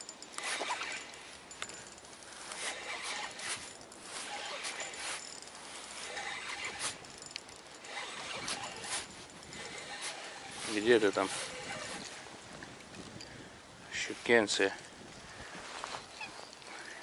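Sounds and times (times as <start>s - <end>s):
fishing reel being cranked: 0.0s - 12.2s.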